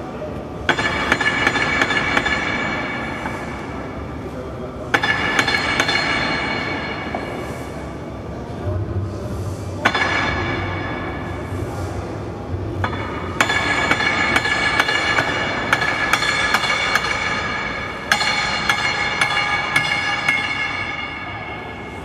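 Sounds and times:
hammer striking metal with ring: 4.9 - 7.4, 12.8 - 21.9.

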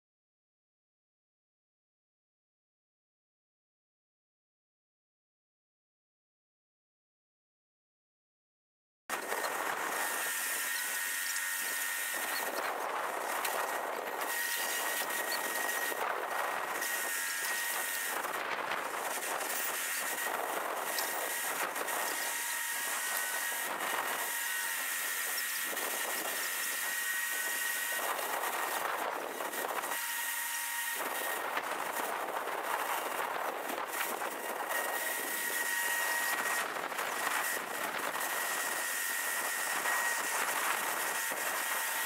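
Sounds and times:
crane running with high whine: 9.1 - 42.0.

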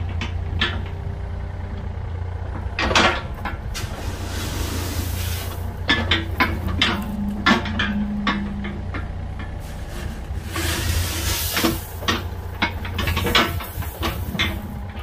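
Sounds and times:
diesel engine running: 0.0 - 15.0
bucket clanking and scraping gravel: 3.0 - 8.2, 9.4 - 15.0.

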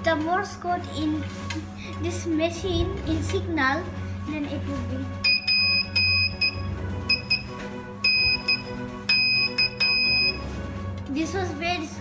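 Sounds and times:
morse code buzzer beeping: 5.2 - 10.4.

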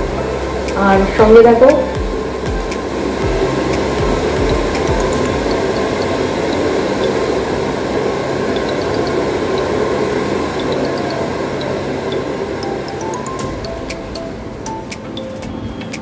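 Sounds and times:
hair dryer running: 0.0 - 12.6.

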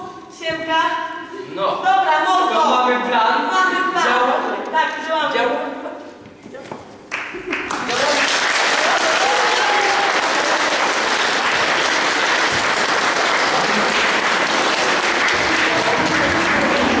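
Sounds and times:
audience applauding: 7.1 - 17.0.

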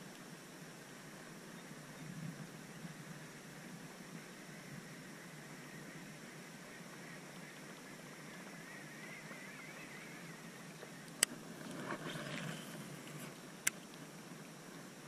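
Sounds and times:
steady hiss: 0.0 - 15.0.

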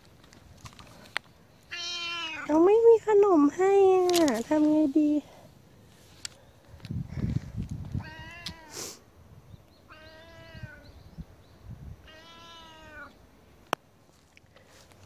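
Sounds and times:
cat meowing: 1.7 - 2.5, 8.0 - 8.8, 9.9 - 10.8, 12.0 - 13.2.

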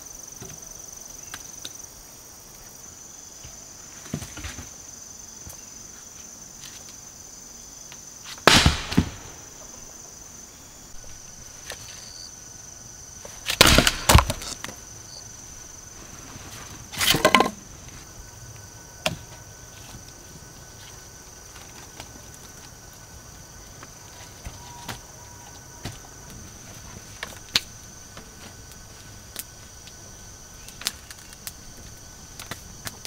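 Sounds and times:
dry wood cracking and snapping: 13.5 - 14.8, 30.6 - 33.0.

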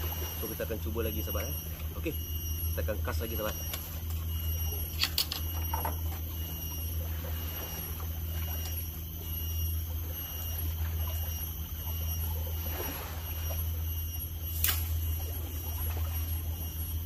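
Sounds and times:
steady low hum: 0.0 - 17.0
fishing rod clicks: 4.9 - 6.0, 14.5 - 15.0.

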